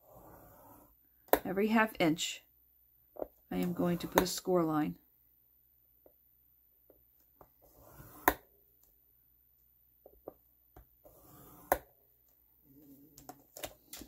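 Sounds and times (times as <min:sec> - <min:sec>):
bone folder scraping: 0:07.6 - 0:08.4.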